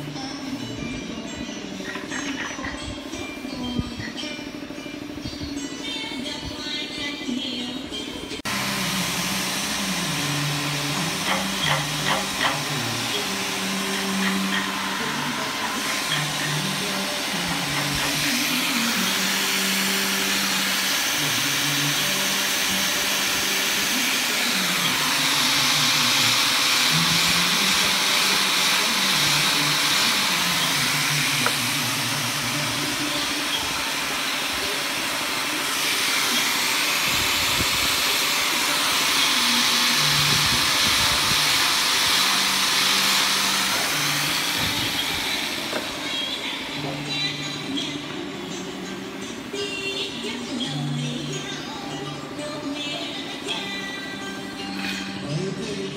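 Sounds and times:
angle grinder sanding wood: 0:08.4 - 0:55.9.

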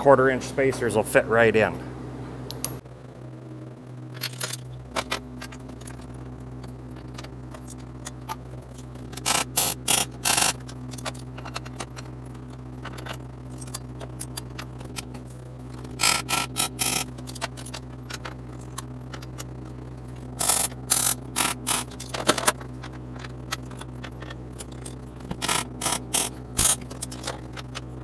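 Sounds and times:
low electrical hum: 0:00.0 - 0:28.0
arc welder crackling bursts: 0:09.0 - 0:10.8, 0:15.8 - 0:17.3, 0:19.6 - 0:22.1, 0:25.4 - 0:27.5.

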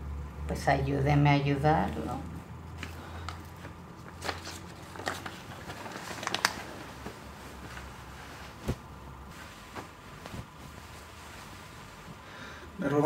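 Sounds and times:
paper rustling: 0:02.8 - 0:12.0.

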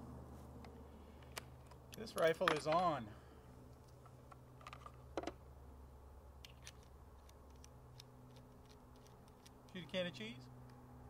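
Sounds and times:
faint clicks handling rifle: 0:06.4 - 0:09.9.

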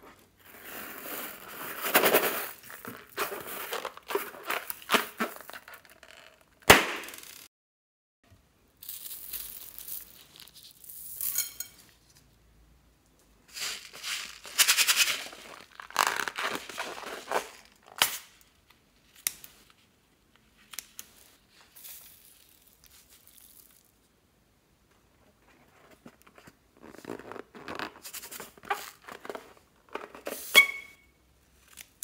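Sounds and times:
rubber balloon crinkling: 0:00.0 - 0:07.5, 0:13.5 - 0:18.4, 0:25.4 - 0:30.9
beads rattling and spilling: 0:00.4 - 0:07.5, 0:08.8 - 0:11.5, 0:13.5 - 0:18.1, 0:21.7 - 0:24.0.

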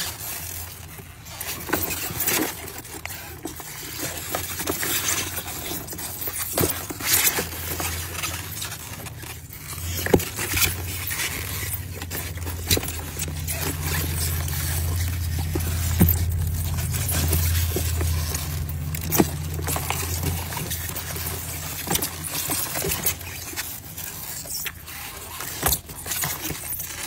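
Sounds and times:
crabs scrabbling and scraping: 0:00.0 - 0:27.0
low steady hum: 0:00.0 - 0:27.0.

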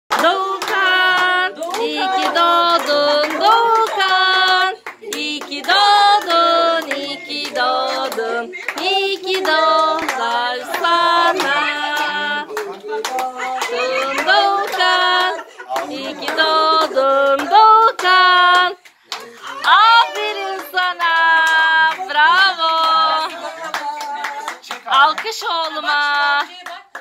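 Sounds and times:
people singing together: 0:00.1 - 0:26.0
hand clapping in time: 0:00.1 - 0:27.0.

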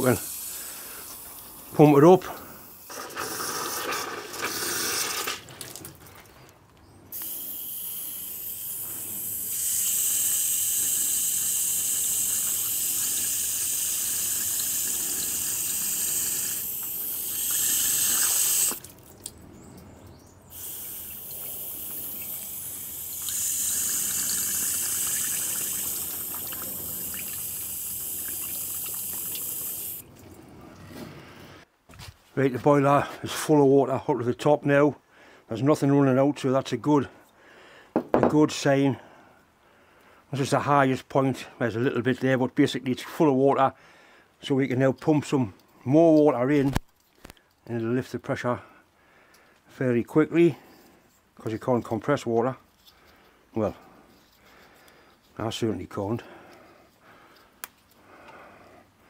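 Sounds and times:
water rushing from hose: 0:00.0 - 0:05.8, 0:07.1 - 0:19.2, 0:20.5 - 0:30.1.

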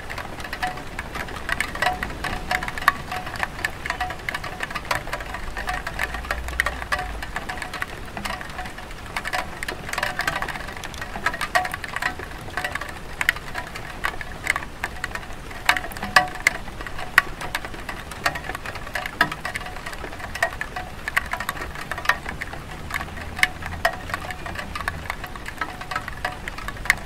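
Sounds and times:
drips tapping: 0:00.0 - 0:27.0
light rain on tile roof: 0:00.0 - 0:27.0.

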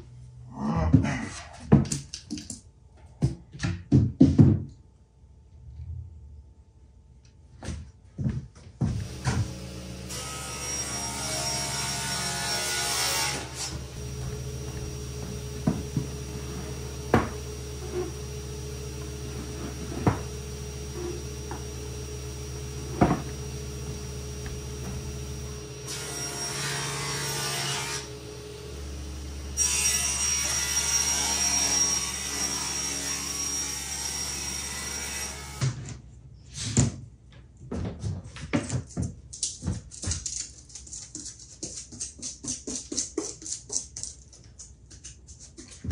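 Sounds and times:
machine hum: 0:08.8 - 0:35.6.

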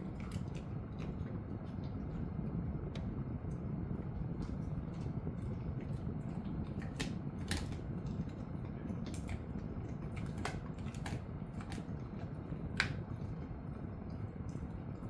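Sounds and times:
low background noise: 0:00.0 - 0:15.0
dog crunching hard snack: 0:05.8 - 0:13.5.

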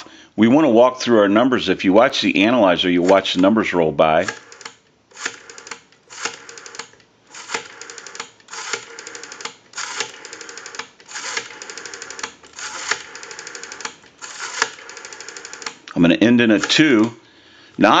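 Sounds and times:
rotary phone dial clicking: 0:04.3 - 0:15.9, 0:16.6 - 0:17.1.

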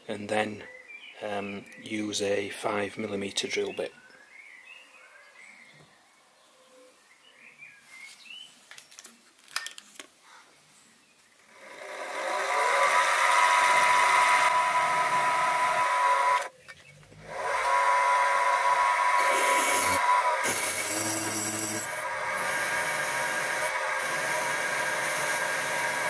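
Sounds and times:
mill spindle motor humming: 0:11.3 - 0:16.5, 0:17.1 - 0:26.0.

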